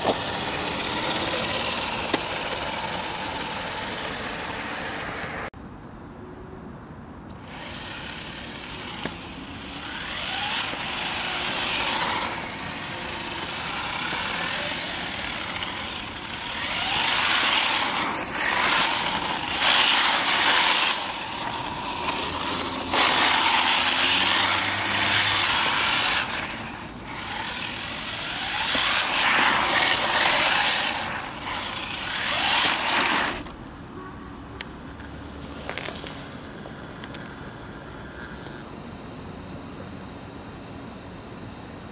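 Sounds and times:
rc car motor whine: 0:00.0 - 0:05.5, 0:07.3 - 0:34.2
tyres hissing on asphalt: 0:07.4 - 0:38.7.

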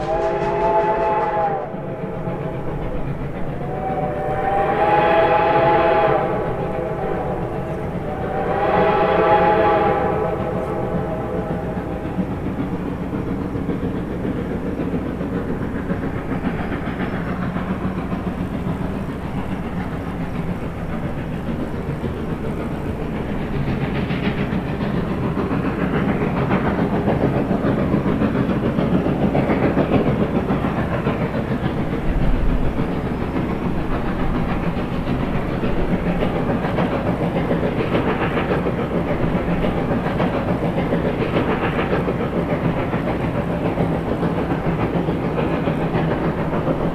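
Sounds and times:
steam locomotive exhaust beat: 0:00.0 - 0:46.9
train rumbling on rails: 0:00.0 - 0:46.9.

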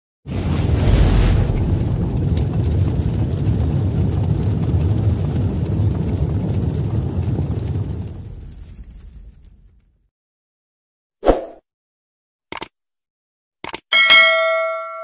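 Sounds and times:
deep rumble: 0:00.3 - 0:10.1.

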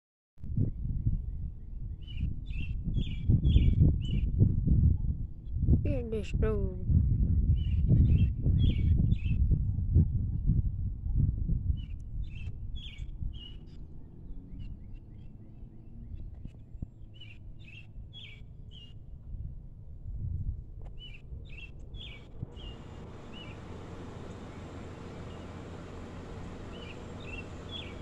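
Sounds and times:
low rumble: 0:00.4 - 0:28.0
bird chirping: 0:11.8 - 0:19.0, 0:21.0 - 0:28.0.

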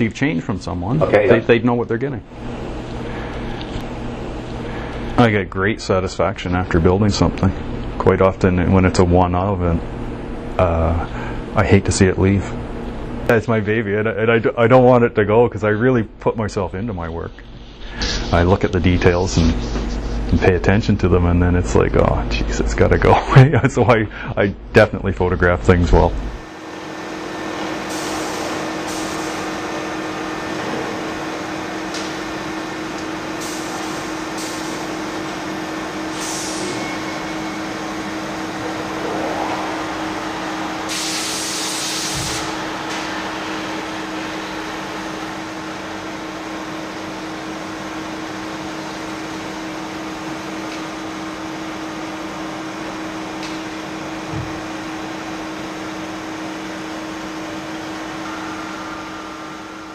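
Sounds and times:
machinery and ventilation drone: 0:00.0 - 0:59.9
short loud air hiss: 0:27.9 - 0:29.4, 0:33.4 - 0:34.8, 0:36.1 - 0:36.8, 0:40.9 - 0:42.6.

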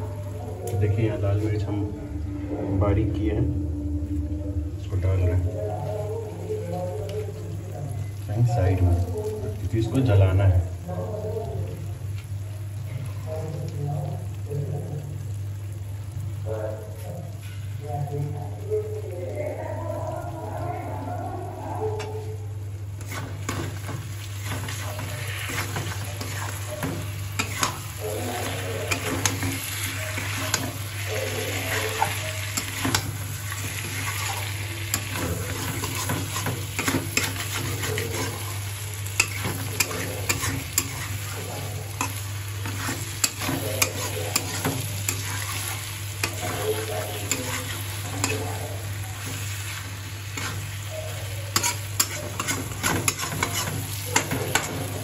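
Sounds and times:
steady low hum: 0:00.0 - 0:09.8
chicken sizzling in oil: 0:05.8 - 0:55.0
metal spatula scraping pan: 0:23.0 - 0:38.6, 0:39.2 - 0:49.4, 0:50.3 - 0:55.0.

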